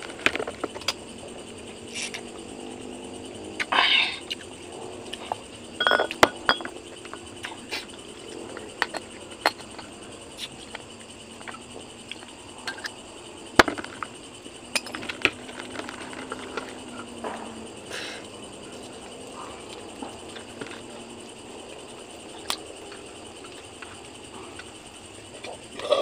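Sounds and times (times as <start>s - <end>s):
glass and bottle clinking: 5.8s - 6.7s.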